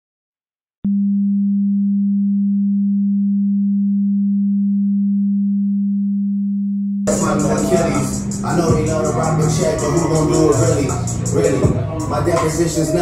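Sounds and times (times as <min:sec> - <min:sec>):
low electronic tone: 0:00.8 - 0:13.0.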